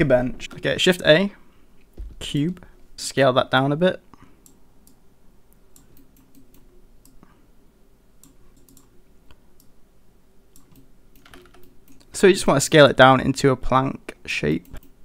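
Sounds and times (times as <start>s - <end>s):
low steady hum: 0.0s - 15.0s
computer mouse clicking: 4.4s - 7.3s, 8.2s - 9.7s, 10.5s - 12.1s, 14.6s - 15.0s.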